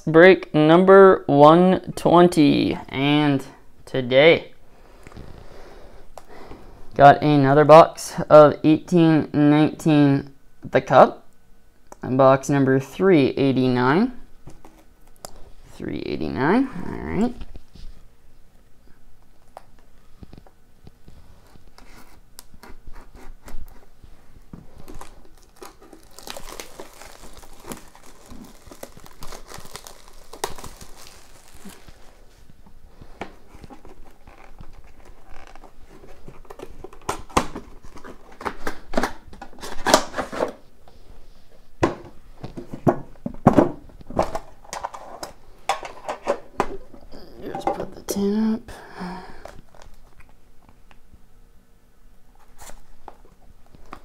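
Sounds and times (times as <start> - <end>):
plastic wrapper crinkling: 23.4 - 40.6, 49.4 - 50.8.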